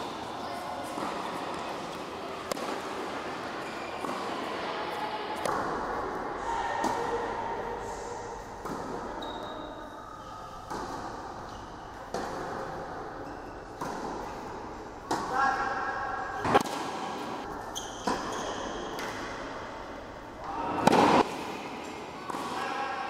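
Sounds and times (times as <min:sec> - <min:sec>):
tennis ball struck by racket: 0:20.8 - 0:21.5.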